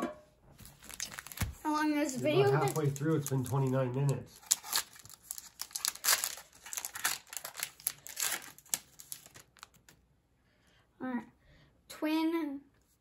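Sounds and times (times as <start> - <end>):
wrapper crinkling and tearing: 0.6 - 10.0.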